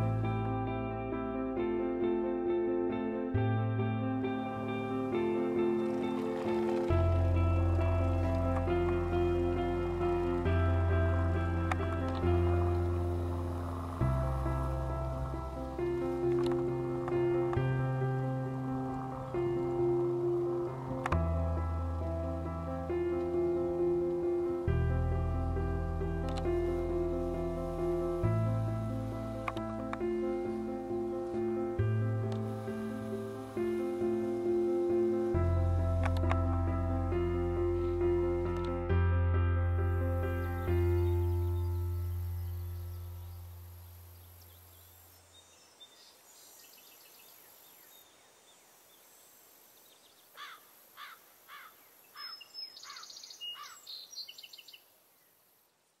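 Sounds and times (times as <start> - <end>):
light plucked notes: 0.0 - 43.8
soft instrumental music: 0.0 - 44.2
faint outdoor ambience: 0.0 - 56.0
low bass note: 6.9 - 44.4
bird singing whistled notes: 40.3 - 50.3, 52.0 - 55.3.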